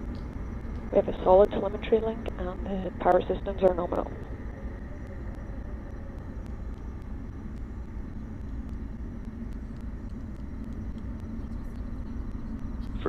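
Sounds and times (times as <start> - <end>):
rocket engines rumbling: 0.0 - 10.0.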